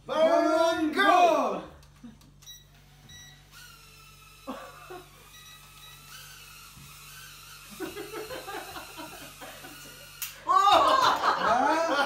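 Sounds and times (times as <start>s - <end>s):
toy drone propellers whining: 2.8s - 10.6s.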